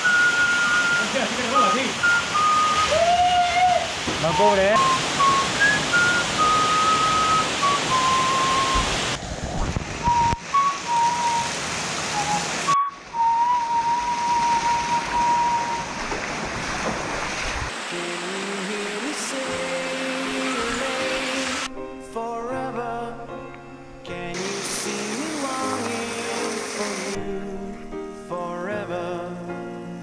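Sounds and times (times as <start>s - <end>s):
music: 0.0s - 2.9s, 18.5s - 30.0s
waterfall and stream rushing: 0.0s - 22.5s, 24.1s - 28.2s.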